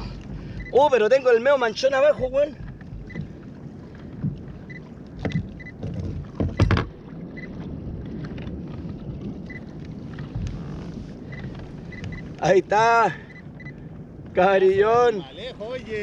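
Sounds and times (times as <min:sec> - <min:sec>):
sharp knocks on hull: 0:00.0 - 0:01.0, 0:01.8 - 0:07.1
wind and water rumble: 0:00.0 - 0:16.0.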